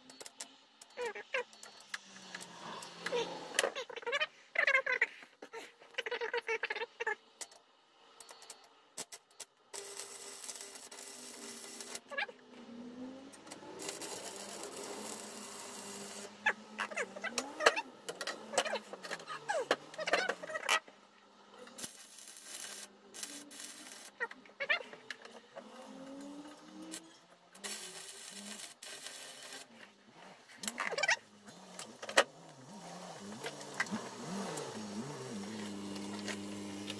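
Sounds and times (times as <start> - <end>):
arc welder crackling: 9.7 - 12.2, 13.3 - 20.8, 21.6 - 24.3, 25.6 - 29.7, 30.6 - 36.9.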